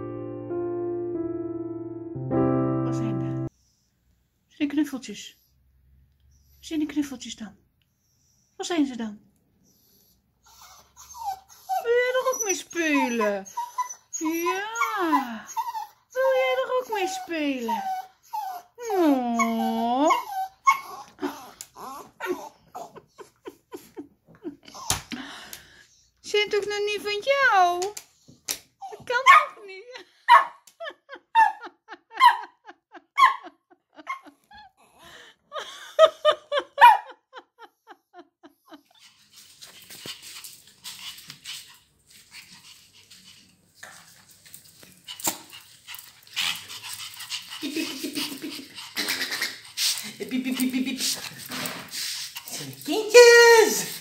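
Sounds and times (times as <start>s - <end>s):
dog whimpers and yips: 9.7s - 23.0s, 28.8s - 29.5s
small dog whining: 10.4s - 23.0s.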